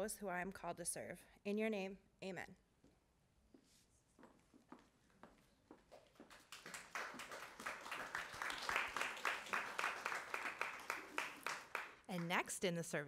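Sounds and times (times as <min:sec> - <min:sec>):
audience applauding: 0:06.1 - 0:12.4.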